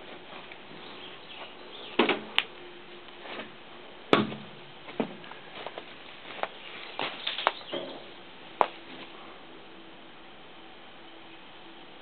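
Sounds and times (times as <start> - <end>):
footsteps crunching through brush: 4.8 - 8.0.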